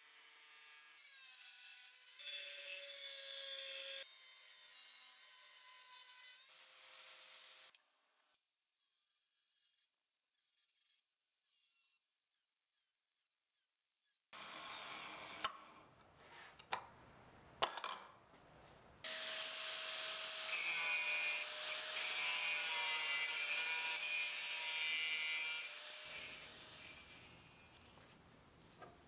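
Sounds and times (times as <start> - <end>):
angle grinder cutting steel: 0.9 - 7.7, 14.0 - 15.6, 19.1 - 27.9.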